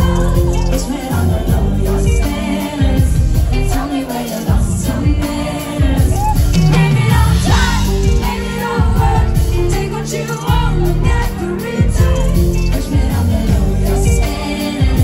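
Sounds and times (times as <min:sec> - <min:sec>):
live pop band: 0:00.0 - 0:15.0
woman singing into a microphone: 0:00.0 - 0:15.0.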